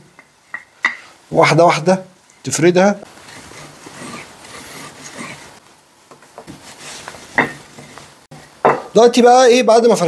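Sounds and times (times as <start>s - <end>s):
rolling pin rolling over dough: 3.1s - 8.3s.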